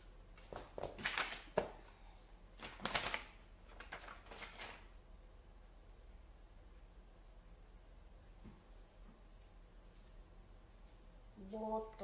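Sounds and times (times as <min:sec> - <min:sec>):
paper rustling: 0:00.4 - 0:01.9, 0:02.6 - 0:04.9.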